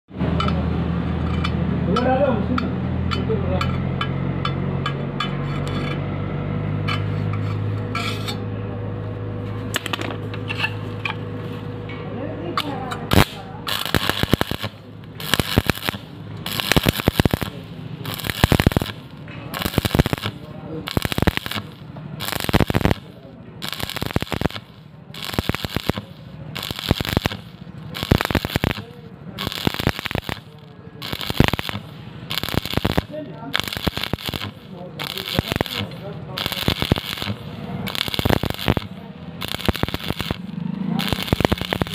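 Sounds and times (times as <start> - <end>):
metal scraping: 6.9 - 8.4, 9.8 - 11.9
steady low hum: 8.5 - 41.9
welding arc crackling and popping: 9.7 - 10.1, 12.6 - 41.9
welding arc hiss: 12.6 - 41.9.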